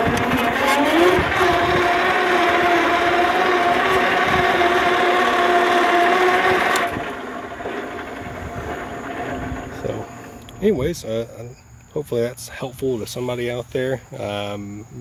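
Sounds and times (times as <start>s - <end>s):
electric tractor motor whine: 0.0s - 11.2s.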